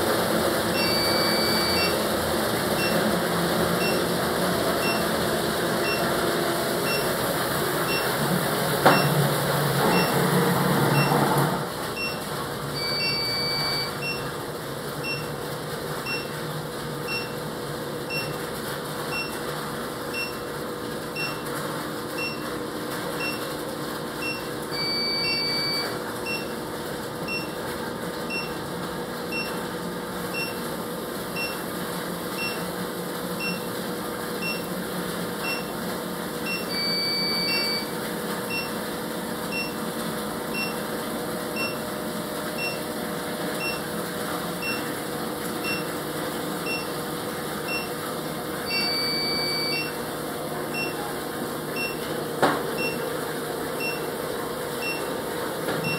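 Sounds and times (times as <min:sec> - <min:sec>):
sump pump humming: 0:00.0 - 0:55.9
long electronic beeps: 0:00.8 - 0:02.0, 0:12.8 - 0:14.2, 0:24.8 - 0:25.9, 0:36.5 - 0:37.8, 0:48.7 - 0:50.0
short electronic beeps: 0:00.8 - 0:02.0, 0:03.8 - 0:04.0, 0:04.8 - 0:05.1, 0:06.9 - 0:07.1, 0:07.9 - 0:08.1, 0:09.9 - 0:10.2, 0:10.9 - 0:11.1, 0:12.0 - 0:12.2, 0:12.8 - 0:14.2, 0:17.1 - 0:17.4, 0:24.2 - 0:26.5, 0:36.5 - 0:37.9, 0:45.6 - 0:45.9, 0:46.6 - 0:46.9, 0:48.7 - 0:50.0, 0:50.7 - 0:51.0, 0:53.8 - 0:54.0.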